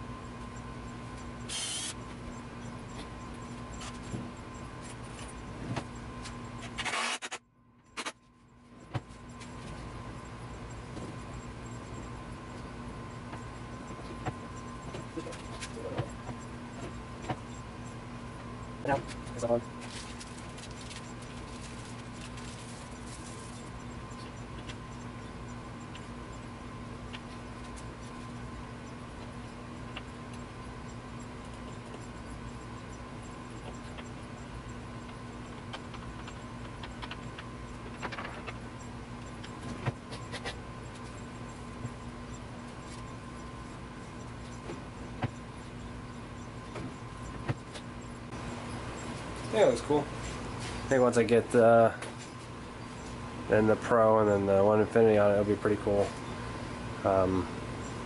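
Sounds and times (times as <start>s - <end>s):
workshop hum: 0.0s - 58.0s
scraping rustles: 19.1s - 23.8s.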